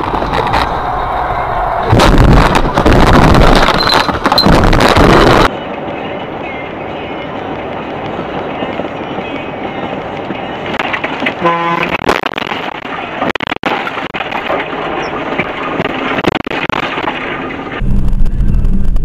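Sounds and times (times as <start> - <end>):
tyres on a wet road: 0.0 - 19.0
car horn blast: 11.4 - 12.0.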